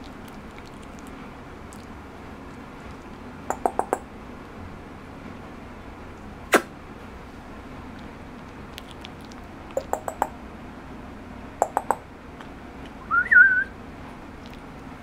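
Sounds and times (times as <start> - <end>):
faint room hum: 0.0 - 15.0.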